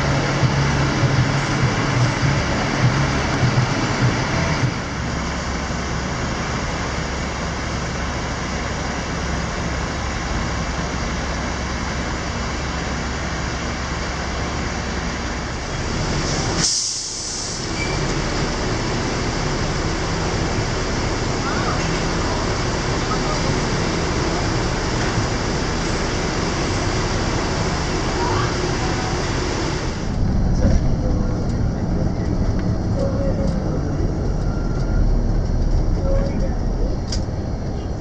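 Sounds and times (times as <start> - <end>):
diesel coach engines idling: 0.0 - 38.0
sharp hiss of air: 16.6 - 17.7.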